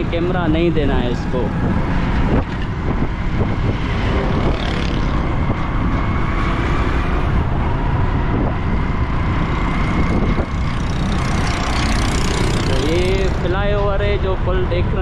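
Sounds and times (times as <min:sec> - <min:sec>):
road and wind noise: 0:00.0 - 0:15.0
motorcycle engine running: 0:08.9 - 0:14.2.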